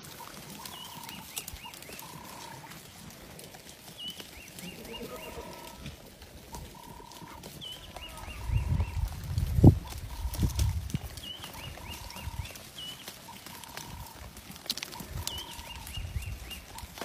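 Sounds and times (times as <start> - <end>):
twigs clicking: 0.0 - 17.0
bird calling high phrase: 0.2 - 2.7, 4.0 - 5.8, 6.5 - 9.1, 15.0 - 16.8.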